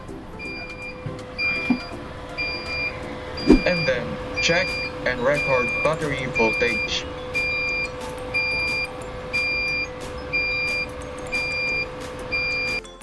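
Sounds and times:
steady low equipment tone: 0:00.0 - 0:12.7
high alarm beeps: 0:00.4 - 0:12.8.

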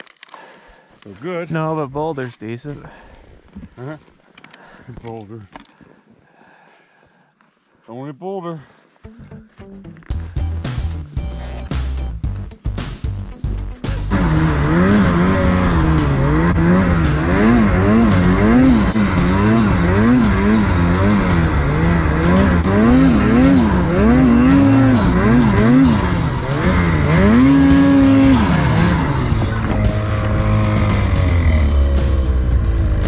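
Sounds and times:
snowmobile engine revving: 0:14.0 - 0:33.0.

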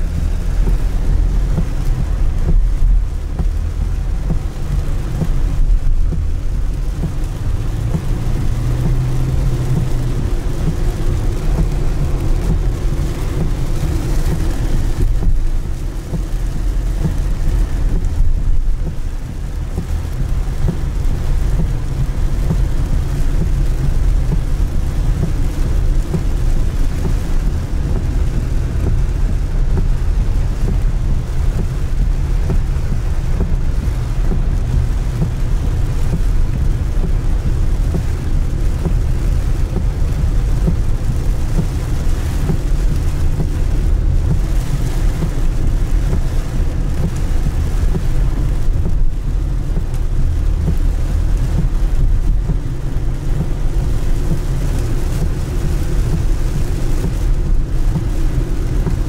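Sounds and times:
car road and tyre noise: 0:00.0 - 0:59.0
rain hissing: 0:00.0 - 0:59.0.

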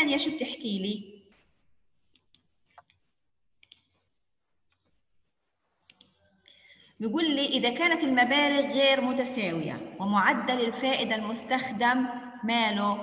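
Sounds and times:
computer mouse clicks: 0:02.0 - 0:03.0, 0:03.6 - 0:04.1, 0:05.8 - 0:06.2.

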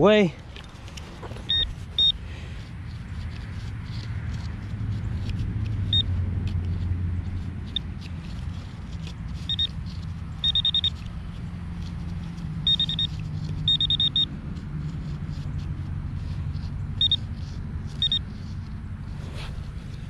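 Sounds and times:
pinpointer beeping: 0:01.5 - 0:02.2, 0:05.9 - 0:06.1, 0:09.5 - 0:09.8, 0:10.4 - 0:11.1, 0:12.6 - 0:14.3, 0:17.0 - 0:17.3, 0:18.0 - 0:18.3.

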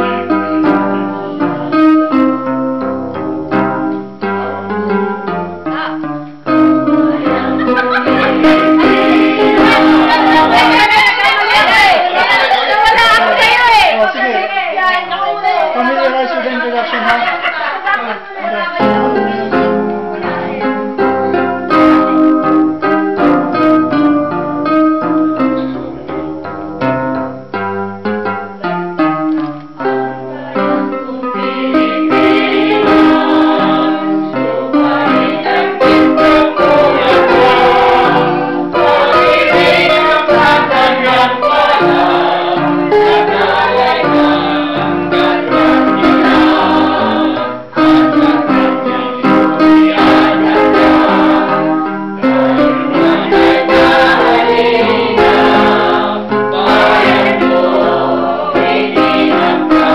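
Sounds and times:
choir singing: 0:05.5 - 0:26.0, 0:29.8 - 0:59.9
electronic keyboard: 0:18.7 - 0:59.9.

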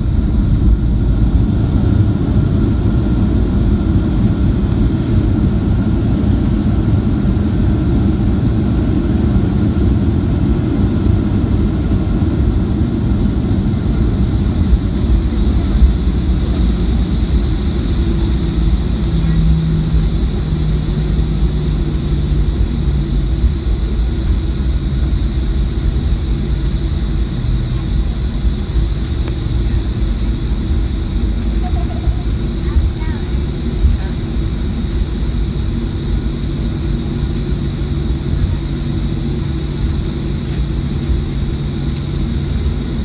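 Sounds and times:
airplane cabin engine rumble: 0:00.0 - 0:43.0.

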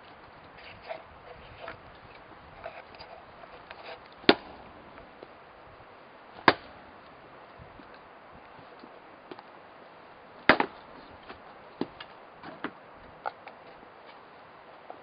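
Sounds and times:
axe striking wood: 0:04.2 - 0:04.7, 0:06.4 - 0:06.8, 0:10.5 - 0:10.8.

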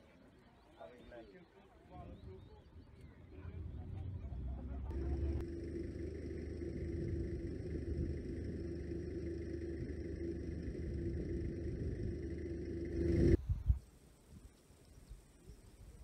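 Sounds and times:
engine idling: 0:03.6 - 0:13.4.

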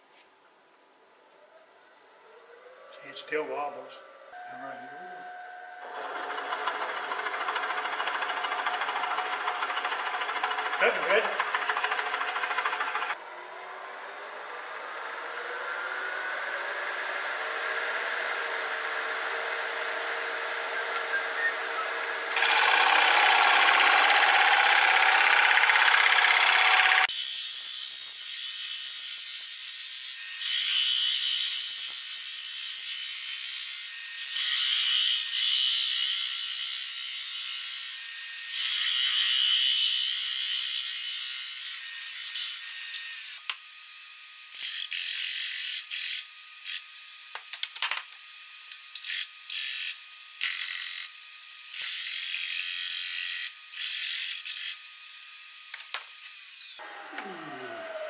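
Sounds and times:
lathe gouge cutting wood: 0:05.8 - 0:13.2, 0:22.3 - 0:27.1.

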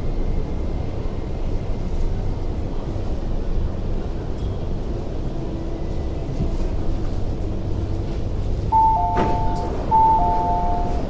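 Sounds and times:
train car rumble: 0:00.0 - 0:11.0
two-tone door chime: 0:08.7 - 0:11.0.

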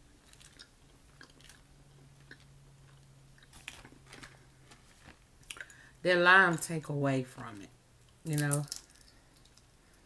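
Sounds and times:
faint low hum: 0:00.0 - 0:10.0
chewing: 0:00.2 - 0:04.4
shells clicking and crackling: 0:08.3 - 0:09.7.

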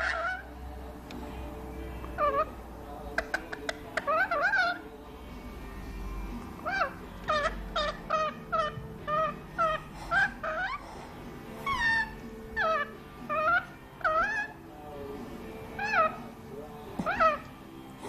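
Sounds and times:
parrot chattering calls: 0:00.0 - 0:00.5, 0:02.1 - 0:04.9, 0:06.6 - 0:11.0, 0:11.6 - 0:14.6, 0:15.7 - 0:16.4, 0:17.0 - 0:17.6.

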